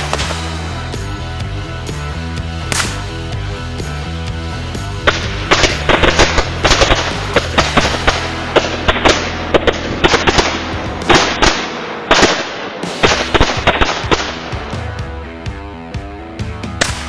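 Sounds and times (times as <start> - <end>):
firecrackers banging: 0.0 - 0.9, 5.0 - 15.0.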